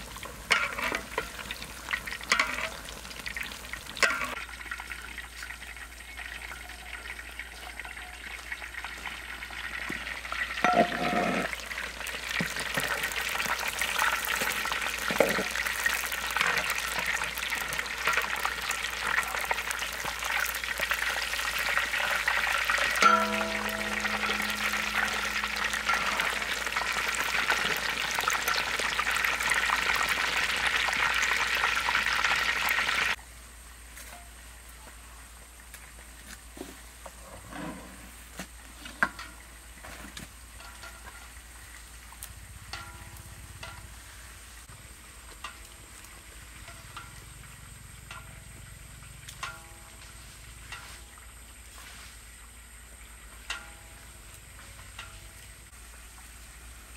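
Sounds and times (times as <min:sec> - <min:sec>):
metal spatula turning food: 0:00.0 - 0:08.8, 0:09.9 - 0:30.0, 0:38.7 - 0:41.8, 0:45.2 - 0:47.3, 0:48.0 - 0:51.2
oil sizzling while deep-frying: 0:00.0 - 0:37.3, 0:38.1 - 0:56.9.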